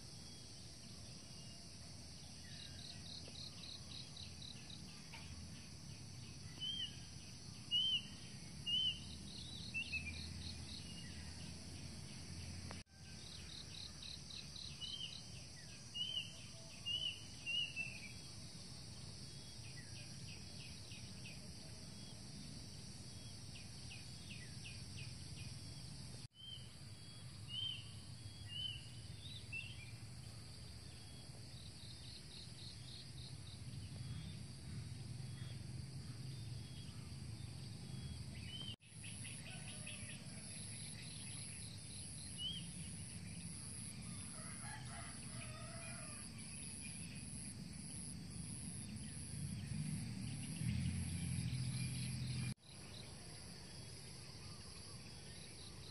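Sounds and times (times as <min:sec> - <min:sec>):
insect chorus trilling: 0:00.0 - 0:55.9
bird chirping: 0:02.5 - 0:18.3.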